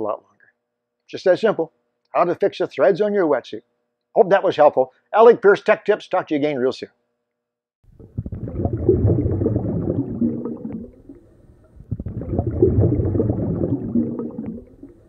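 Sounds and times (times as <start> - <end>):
air bubbles gurgling in water: 7.9 - 15.0.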